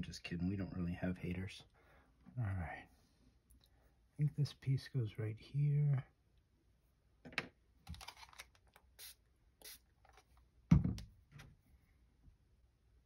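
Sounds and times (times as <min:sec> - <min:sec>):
thump: 0:10.7 - 0:11.1.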